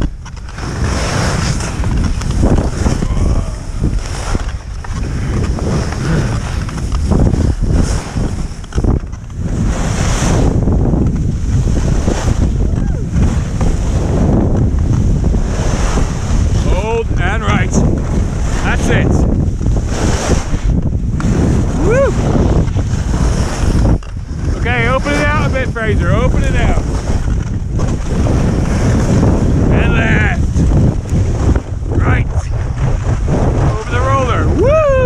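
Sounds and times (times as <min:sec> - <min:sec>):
ski carving through snow: 0:00.0 - 0:34.6
wind rushing over microphone: 0:00.0 - 0:35.0.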